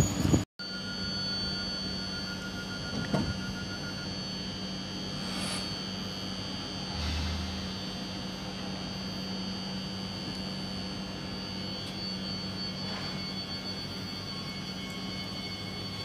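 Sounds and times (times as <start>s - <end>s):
electric train humming and whining: 0.0s - 16.0s.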